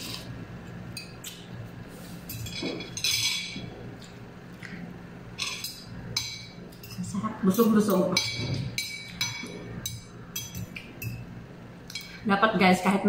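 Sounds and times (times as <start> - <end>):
forks clinking on ceramic bowls: 0.9 - 1.4, 2.3 - 4.2, 5.4 - 11.3.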